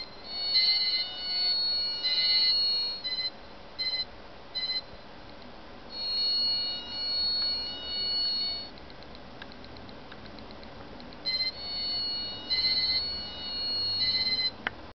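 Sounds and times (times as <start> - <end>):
piezo buzzer high whine: 0.0 - 4.9, 5.9 - 8.7, 11.3 - 14.6.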